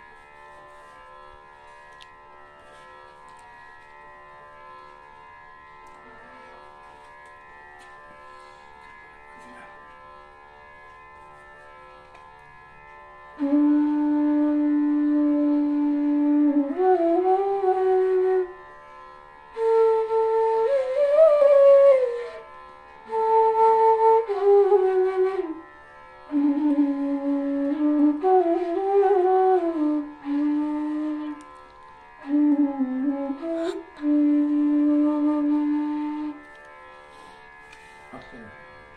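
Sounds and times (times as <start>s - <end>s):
bamboo flute playing: 13.3s - 38.0s.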